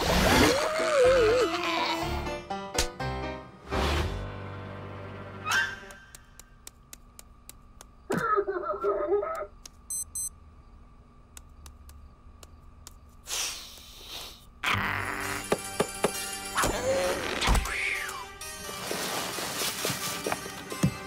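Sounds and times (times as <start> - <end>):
faint steady hum: 6.2 - 14.6
wordless cartoon voice: 8.1 - 9.5.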